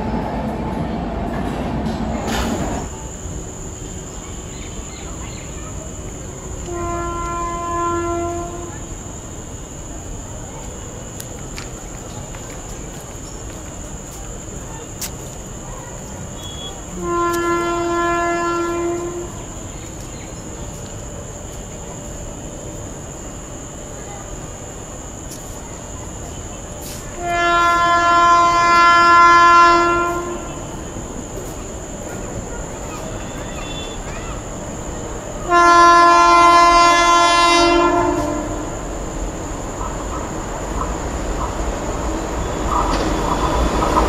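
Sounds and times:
train rumbling: 0:00.0 - 0:44.0
locomotive air horn blast: 0:06.6 - 0:08.8, 0:16.4 - 0:19.4, 0:26.8 - 0:30.7, 0:35.5 - 0:38.8.

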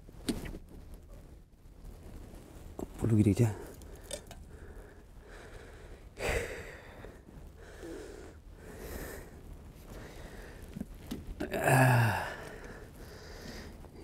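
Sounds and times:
man breathing out in puffs: 0:03.9 - 0:10.7, 0:11.6 - 0:14.0.

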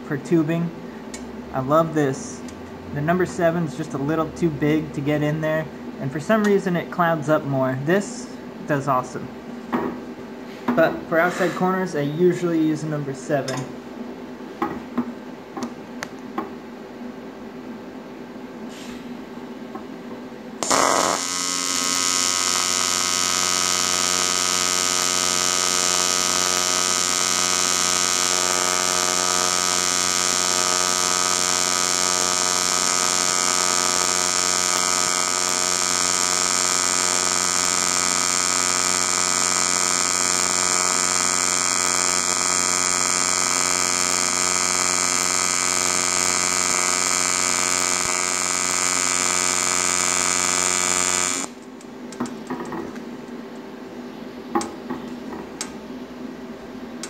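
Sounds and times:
welding arc buzzing: 0:20.6 - 0:53.0.

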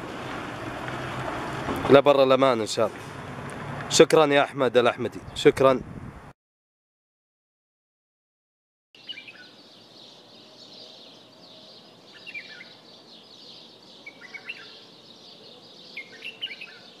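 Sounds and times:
birds chirping: 0:09.0 - 0:17.0
steady high outdoor hiss: 0:09.0 - 0:17.0.

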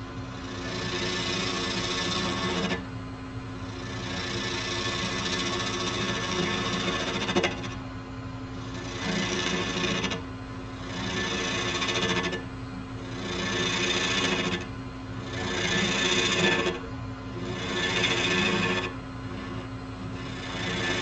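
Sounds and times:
lathe motor hum: 0:00.0 - 0:21.0
turning tool cutting wood: 0:00.3 - 0:02.9, 0:03.6 - 0:07.9, 0:08.6 - 0:21.0.

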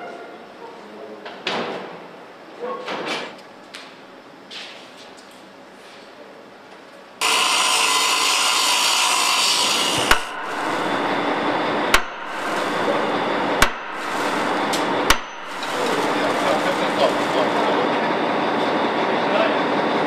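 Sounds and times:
cutting torch hissing: 0:07.2 - 0:18.6.

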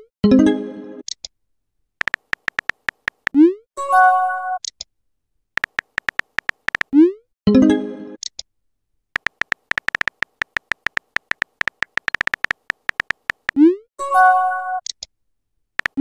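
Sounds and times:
phone keyboard typing clicks: 0:02.0 - 0:03.4, 0:05.6 - 0:06.9, 0:09.2 - 0:13.6, 0:15.8 - 0:16.0.

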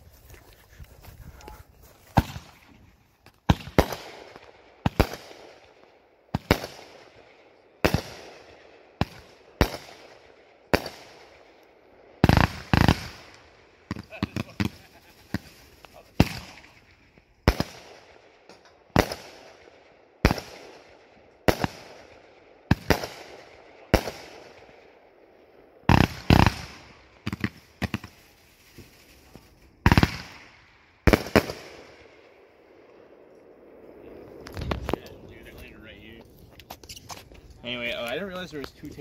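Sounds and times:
firework bangs: 0:02.1 - 0:11.6, 0:12.2 - 0:24.9, 0:25.8 - 0:32.4.

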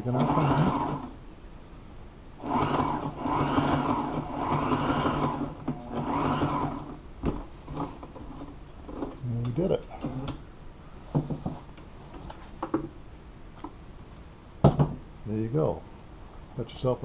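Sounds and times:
sewing machine stitching: 0:00.0 - 0:01.1, 0:02.4 - 0:07.0.

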